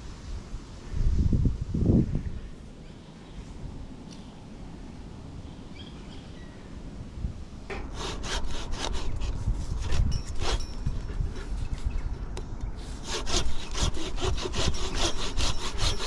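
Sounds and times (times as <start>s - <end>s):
hand saw cutting branch: 7.7s - 11.8s, 12.8s - 16.0s.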